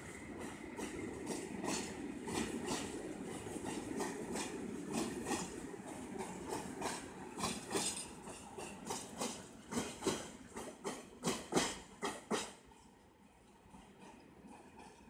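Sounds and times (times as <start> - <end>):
train rumble: 0.0 - 15.0
train wheels clacking over rail joints: 0.4 - 13.0, 13.7 - 15.0.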